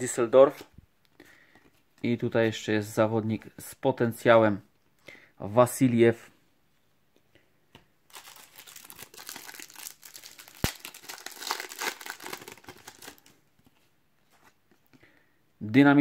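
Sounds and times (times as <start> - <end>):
foil wrapper tearing: 8.1 - 13.3
foil wrapper crinkling: 8.1 - 13.4.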